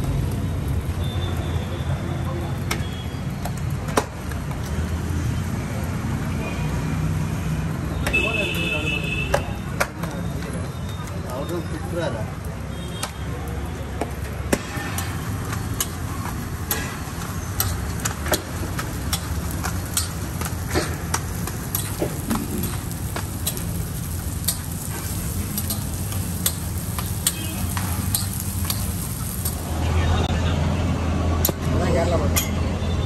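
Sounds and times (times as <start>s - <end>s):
frying hiss: 0.0s - 30.7s
metal spatula scraping griddle: 14.5s - 29.6s.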